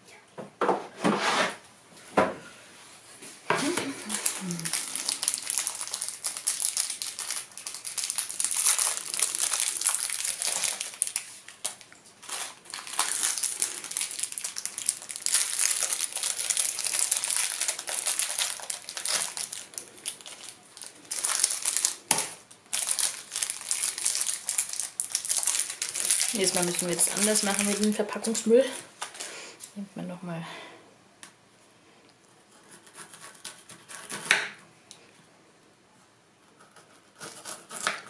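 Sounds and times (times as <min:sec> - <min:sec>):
crinkly wrappers crumpled: 0:03.6 - 0:29.8.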